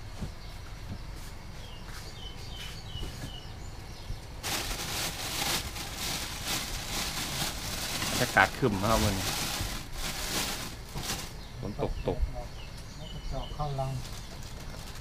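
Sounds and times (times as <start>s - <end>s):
low background rumble: 0.0s - 15.0s
bird chirping: 0.2s - 4.4s, 10.9s - 15.0s
loud steady hiss: 4.2s - 11.8s.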